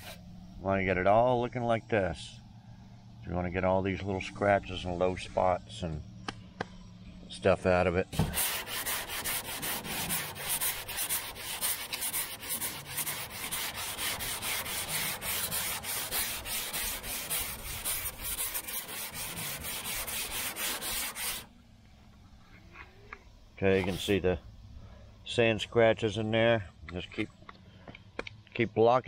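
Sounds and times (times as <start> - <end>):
sandpaper rubbing on metal door: 0.0 - 0.2, 8.2 - 21.5, 23.7 - 24.2.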